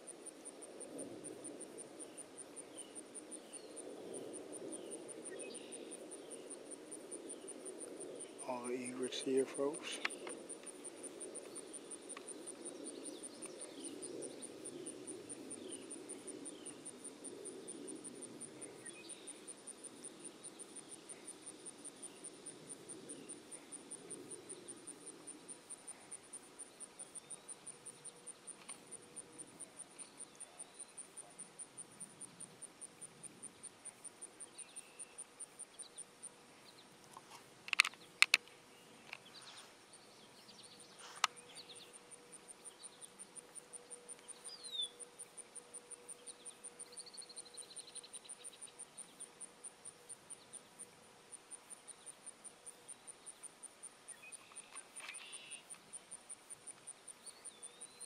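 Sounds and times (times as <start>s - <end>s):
insect chirping: 0.0s - 58.0s
sharp clicks: 37.7s - 38.5s.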